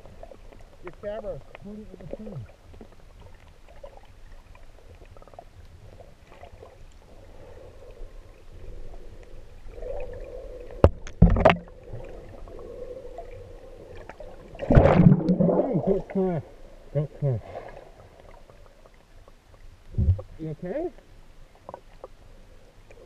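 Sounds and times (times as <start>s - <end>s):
faint steady hum: 0.0s - 23.0s
muffled underwater water rumble: 0.0s - 23.0s.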